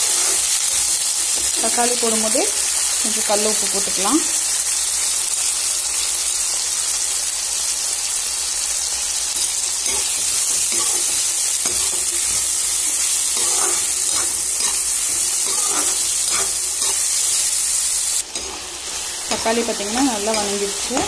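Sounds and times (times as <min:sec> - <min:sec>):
steel ladle scraping a pan: 0:00.0 - 0:00.9, 0:09.4 - 0:21.0
onions sizzling in hot oil: 0:00.0 - 0:21.0.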